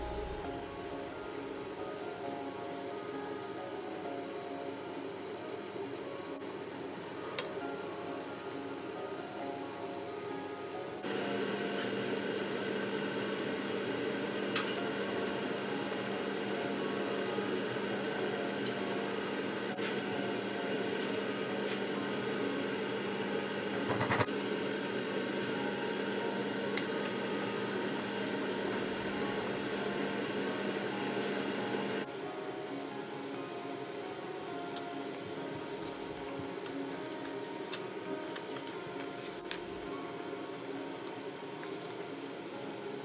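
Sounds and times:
steady hum: 0.0s - 7.0s.

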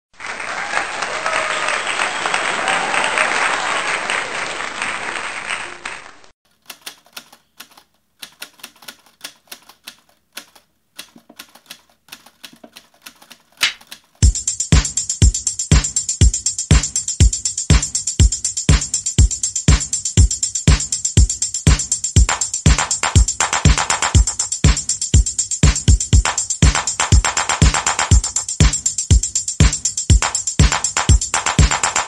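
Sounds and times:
crowd applause: 0.1s - 6.3s
typewriter key clicks: 6.5s - 14.2s.

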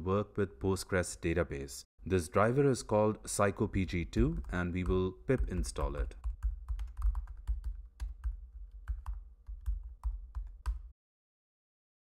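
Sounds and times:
computer keyboard typing: 4.2s - 11.0s.

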